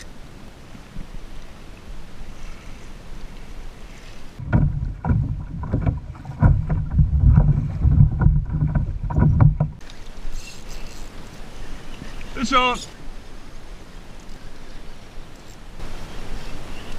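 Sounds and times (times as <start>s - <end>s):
waves slapping hull: 0.0s - 16.9s
wind: 0.0s - 16.9s
wind buffeting: 4.3s - 9.8s
low rumble with knocks: 4.4s - 9.8s.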